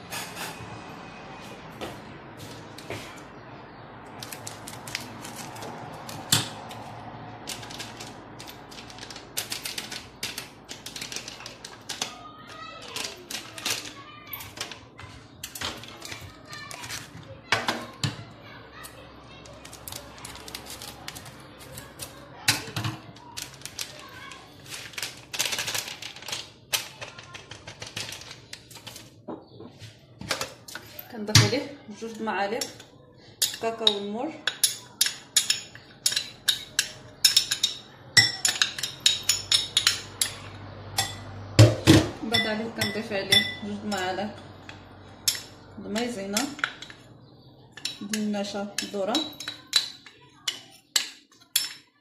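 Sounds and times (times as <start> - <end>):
powder packet crinkling: 7.4 - 12.1, 19.5 - 22.2, 23.2 - 29.1
metal spoon stirring in a bowl: 31.9 - 41.3, 42.3 - 52.0.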